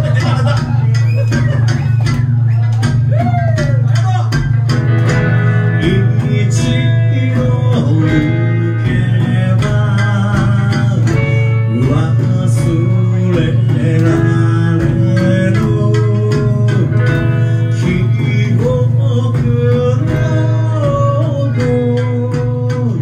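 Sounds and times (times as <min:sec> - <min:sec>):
guitar: 0:00.0 - 0:23.0
heavy bass line: 0:00.0 - 0:23.0
steady drum beat: 0:00.0 - 0:23.0
plucked lute: 0:04.3 - 0:23.0
person singing melody: 0:05.1 - 0:23.0.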